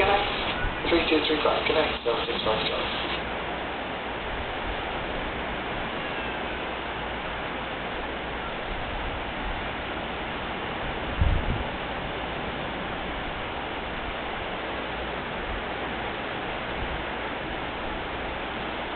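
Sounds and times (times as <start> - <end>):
surf at a beach: 0.0 - 18.9
wind on microphone: 10.8 - 14.4.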